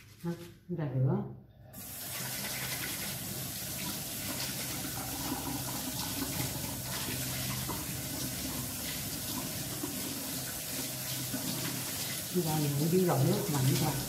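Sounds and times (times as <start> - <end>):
tap running into steel sink: 4.4 - 8.6.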